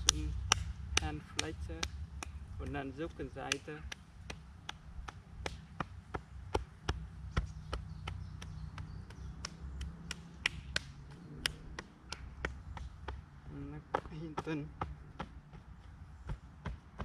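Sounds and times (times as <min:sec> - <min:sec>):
hand tapping on arm: 0:00.0 - 0:13.3.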